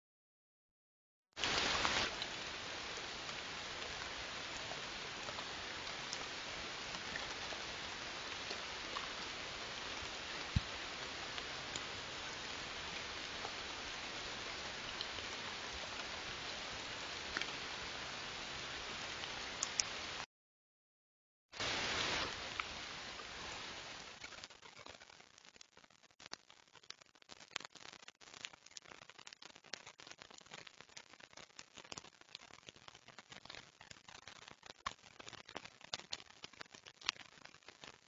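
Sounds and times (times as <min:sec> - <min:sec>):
microphone hiss: 0:01.4 - 0:20.2, 0:21.6 - 0:25.9
faint ticks: 0:19.6 - 0:19.9.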